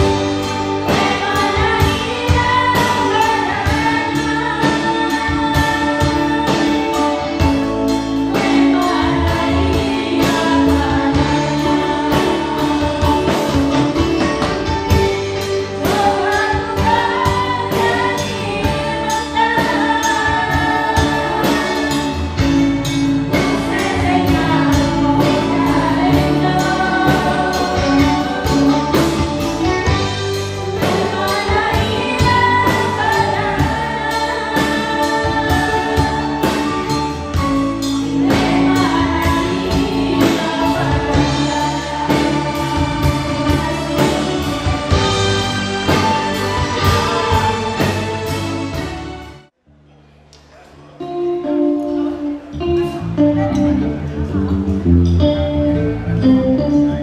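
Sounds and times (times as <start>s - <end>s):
drum kit beat: 0.0s - 49.5s
women singing together: 0.8s - 7.6s, 8.3s - 13.6s, 15.8s - 22.3s, 23.4s - 29.7s, 30.7s - 37.1s, 38.0s - 48.3s.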